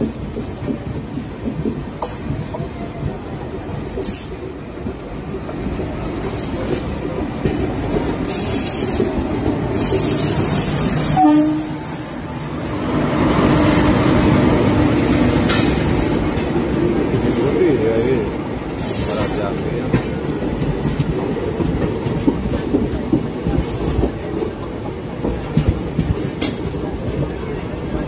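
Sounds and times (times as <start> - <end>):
train wheels rumbling on rails: 0.0 - 28.0
train horn note: 11.2 - 12.1.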